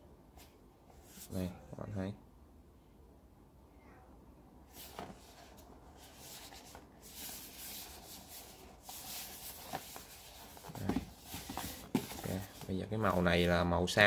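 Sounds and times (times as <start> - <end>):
cardboard box rustling and scraping: 4.7 - 13.3.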